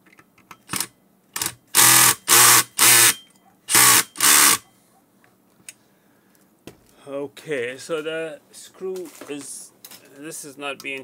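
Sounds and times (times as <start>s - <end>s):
cordless screwdriver running: 1.4s - 4.6s.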